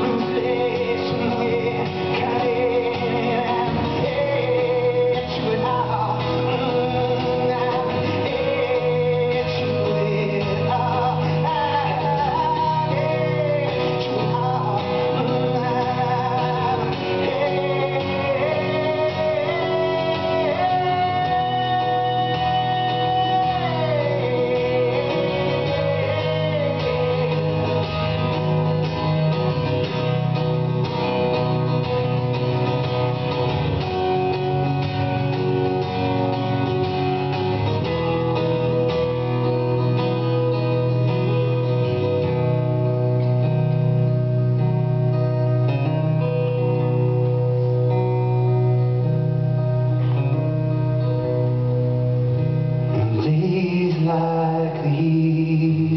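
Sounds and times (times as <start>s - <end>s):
man singing: 0.0s - 30.1s, 52.9s - 55.9s
acoustic guitar strumming: 0.0s - 55.9s.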